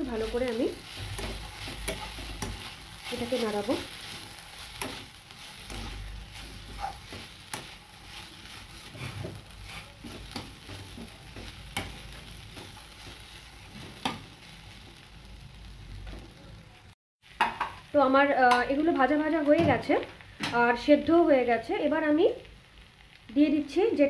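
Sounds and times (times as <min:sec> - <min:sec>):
food sizzling in a pan: 0:00.0 - 0:24.0
utensil scraping a pan: 0:00.2 - 0:14.2.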